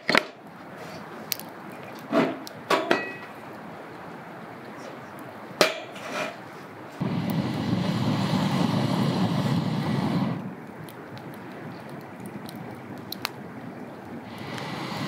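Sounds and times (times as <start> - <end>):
low rushing noise: 6.6 - 15.0.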